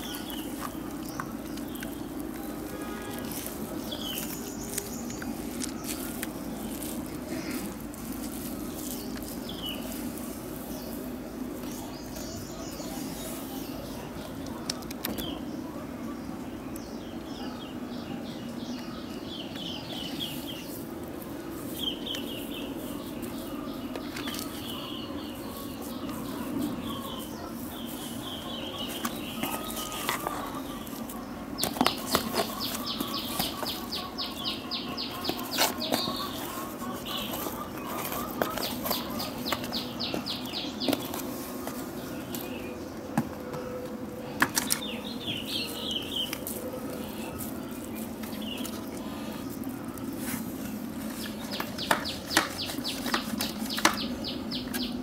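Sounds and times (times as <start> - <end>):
small crackles: 0.0 - 12.4
hands rustling potting soil: 0.0 - 15.4, 18.8 - 55.0
birds chirping: 0.0 - 55.0.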